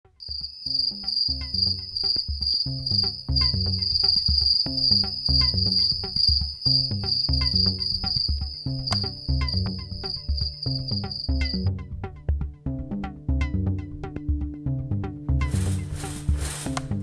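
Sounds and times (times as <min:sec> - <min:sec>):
cricket trill: 0:00.2 - 0:11.7
music with low bass line: 0:01.4 - 0:17.0.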